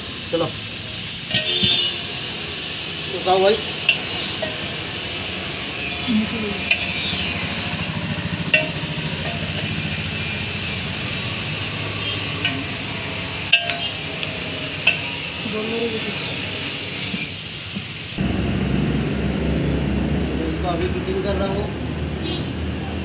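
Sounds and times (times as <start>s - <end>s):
steady background noise: 0.0s - 23.0s
metal clinks and taps: 12.4s - 12.8s, 13.5s - 15.1s.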